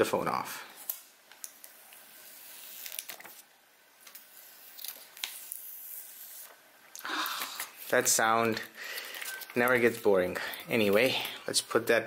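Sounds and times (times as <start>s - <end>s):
plastic film peeling crackle: 0.8s - 3.4s, 4.0s - 6.6s, 7.3s - 11.3s.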